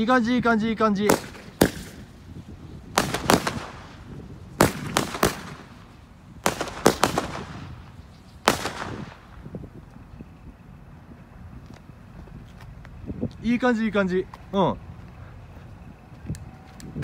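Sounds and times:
fireworks bursting: 0:01.0 - 0:09.5.

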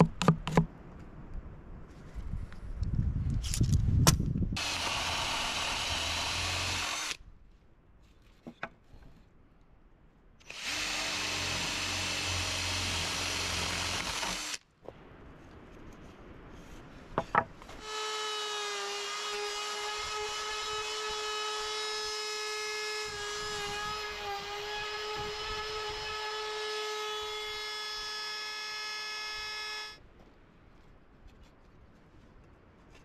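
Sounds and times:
trim router whining: 0:04.6 - 0:07.2, 0:10.5 - 0:14.6.

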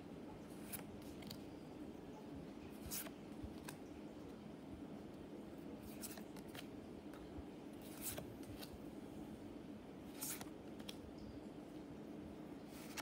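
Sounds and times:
cards sliding with papery swish: 0:07.8 - 0:08.8, 0:10.1 - 0:10.5, 0:12.8 - 0:13.0.

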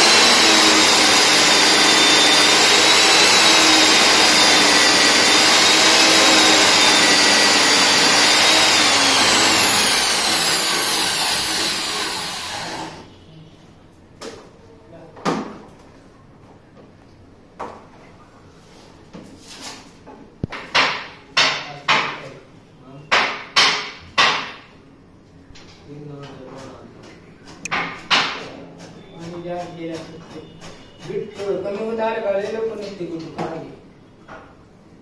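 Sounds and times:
core drill boring into concrete: 0:00.0 - 0:13.1.

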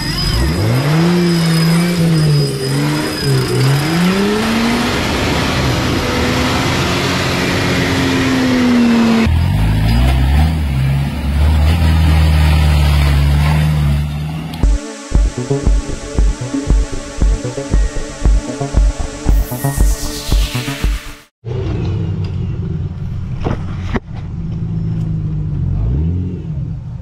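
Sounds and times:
buggy engine revving hard: 0:00.0 - 0:14.7, 0:25.3 - 0:26.9.

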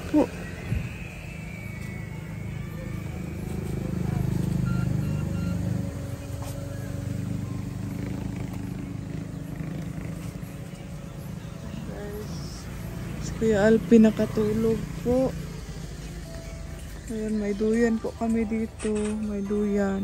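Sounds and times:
vehicle engine rumbling: 0:00.0 - 0:20.0.

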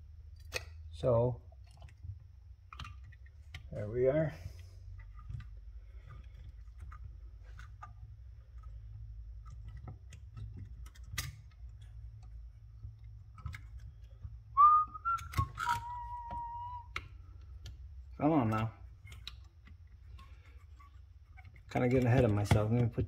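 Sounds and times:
small metal parts clicking: 0:05.0 - 0:14.3
person whistling: 0:14.6 - 0:17.0.

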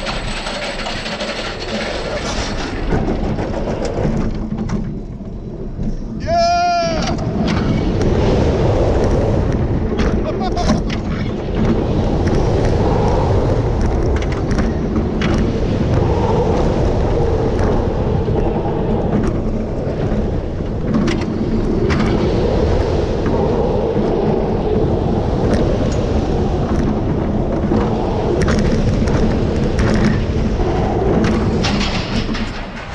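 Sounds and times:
clicks and rattles: 0:00.0 - 0:06.0
roller coaster rumbling on rail: 0:00.0 - 0:32.9
wind buffeting microphone: 0:00.0 - 0:32.9.

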